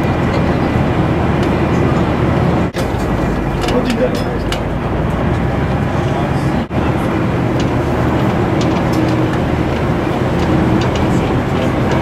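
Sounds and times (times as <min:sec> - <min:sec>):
vehicle engine running: 0:00.0 - 0:12.0
body clicks and rattles: 0:02.8 - 0:05.8, 0:07.0 - 0:12.0.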